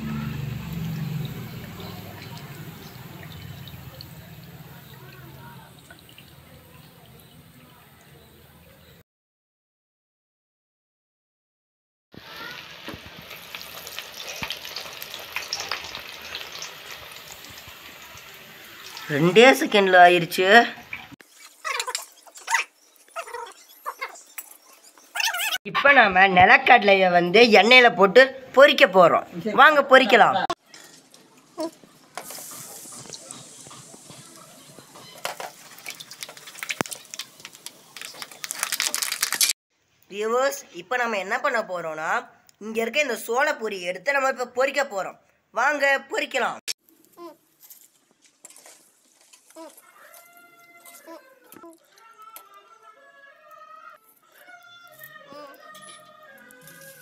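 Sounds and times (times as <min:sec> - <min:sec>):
hot oil sizzling and crackling: 0:00.3 - 0:07.3, 0:12.1 - 0:25.2, 0:30.6 - 0:39.6, 0:46.8 - 0:50.9.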